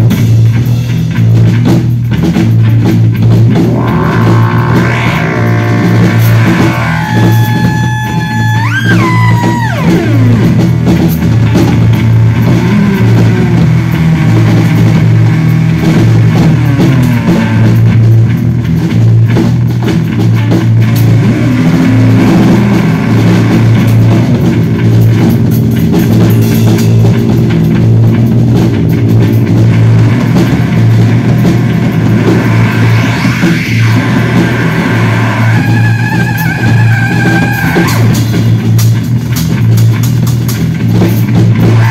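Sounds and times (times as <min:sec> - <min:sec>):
drum kit: 0:00.0 - 0:41.9
electric bass guitar with effects: 0:00.0 - 0:41.9
effects tone diving in pitch: 0:03.4 - 0:18.2, 0:20.8 - 0:25.2, 0:29.5 - 0:38.8.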